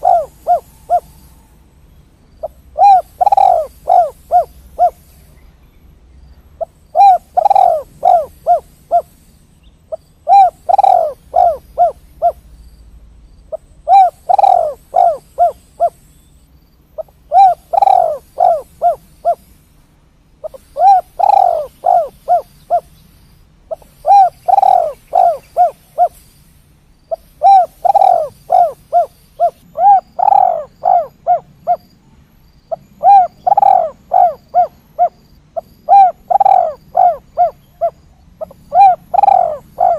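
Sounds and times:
dove cooing: 0.0 - 1.6, 2.4 - 5.3, 6.6 - 9.2, 9.9 - 12.4, 13.5 - 16.1, 17.0 - 19.6, 20.4 - 22.9, 23.7 - 26.2, 27.1 - 31.9, 32.7 - 39.9.

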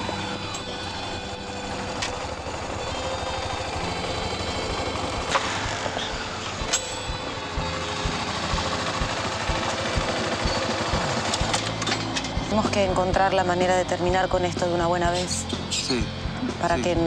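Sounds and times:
small motorcycle engine running: 0.0 - 17.0.

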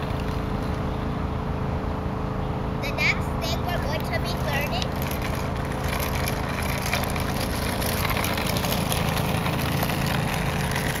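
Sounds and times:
scooter wheels rolling on asphalt: 0.0 - 1.0, 3.4 - 11.0.

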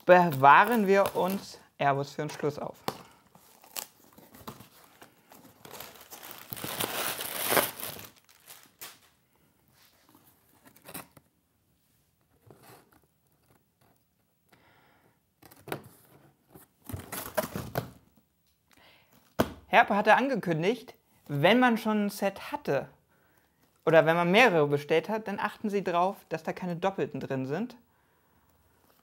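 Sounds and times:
cardboard and packing material rustling: 0.0 - 1.6, 2.5 - 9.2
packing tape tearing: 3.4 - 9.1.

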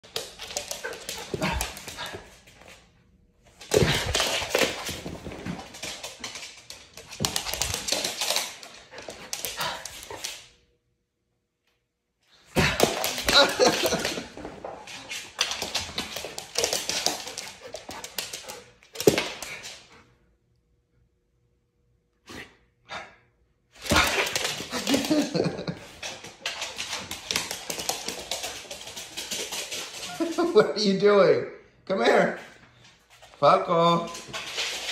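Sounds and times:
dog claws clattering on floor: 0.0 - 2.2, 3.6 - 10.4, 12.6 - 19.8, 23.8 - 30.4.

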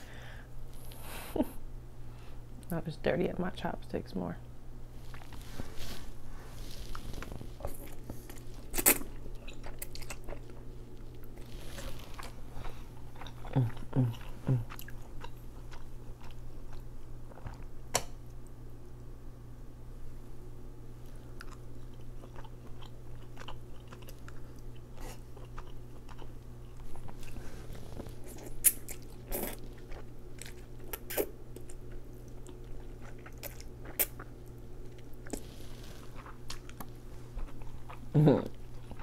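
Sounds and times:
low steady hum: 0.0 - 39.0
close chewing: 6.7 - 17.7, 21.4 - 39.0.

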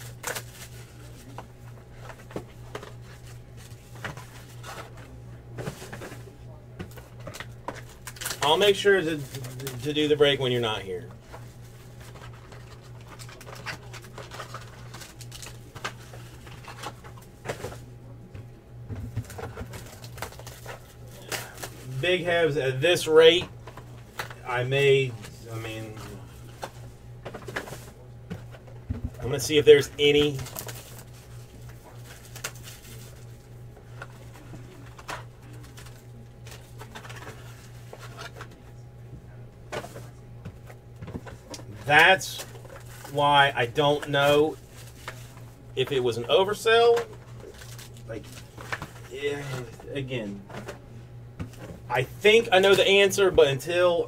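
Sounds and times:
steady low hum: 0.0 - 54.0
plastic shrink wrap crinkling: 30.1 - 33.4.

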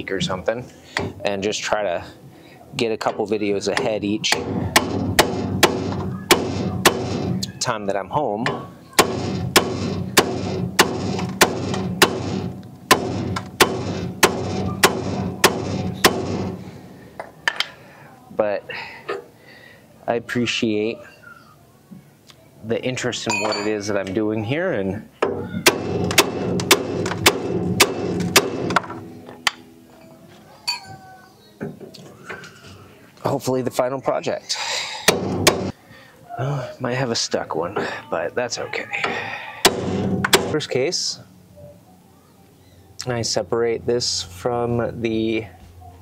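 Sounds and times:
hammer striking metal separator: 3.8 - 7.5, 8.4 - 16.6
metal ringing: 8.4 - 16.7, 23.2 - 23.9, 25.4 - 31.2.

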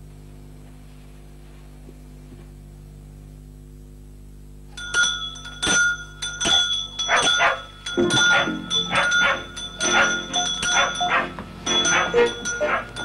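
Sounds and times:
steady high ringing tone: 4.7 - 13.0
dogs barking: 7.0 - 13.0.

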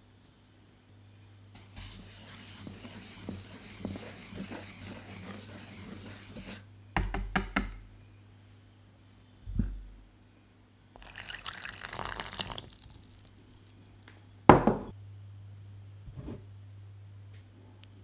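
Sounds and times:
flour stirred in wooden bowl: 1.6 - 6.6, 11.0 - 14.1.

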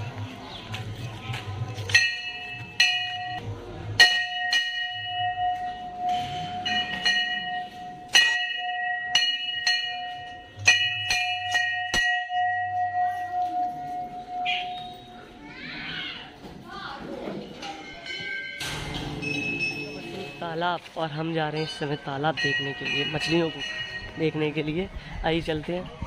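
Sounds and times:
brass bells clanging: 1.8 - 15.2, 17.8 - 24.7.

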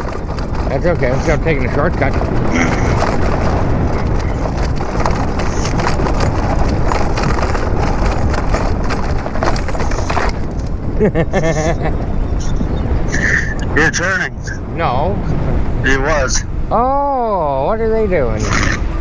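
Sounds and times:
bike rattling knocks: 0.0 - 11.7
tyre and wind rumble: 0.0 - 19.0.

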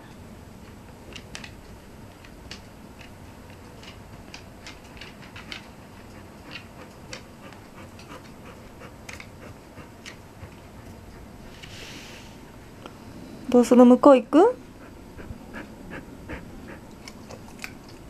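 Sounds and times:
low background noise: 0.0 - 18.0
dog claws clicking on wooden floor: 0.6 - 8.4, 9.0 - 9.4.

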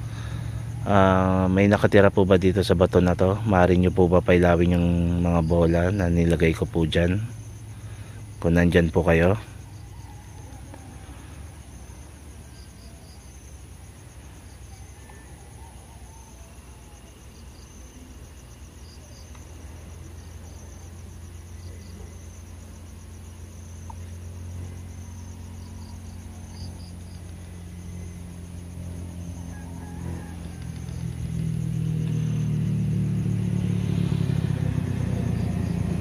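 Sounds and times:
night insects trilling: 0.0 - 36.0
road traffic rumble: 0.0 - 36.0
vehicle approaching: 0.0 - 36.0.

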